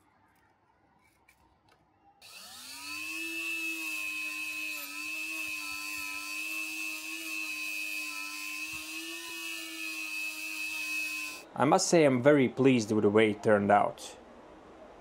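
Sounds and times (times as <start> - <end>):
rotary tool high whine: 2.2 - 11.5.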